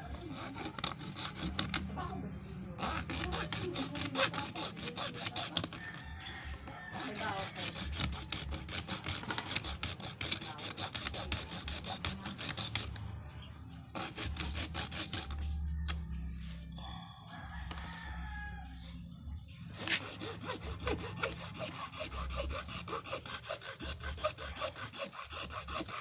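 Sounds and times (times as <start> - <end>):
hacksaw sawing plastic case: 0.1 - 1.9, 2.8 - 6.0, 6.9 - 13.0, 14.0 - 15.4, 19.8 - 26.0.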